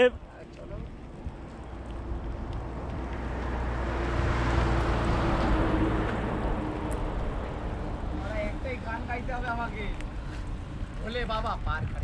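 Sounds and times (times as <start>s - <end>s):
motor vehicle passing: 0.8s - 11.0s
wind noise on microphone: 10.5s - 12.0s.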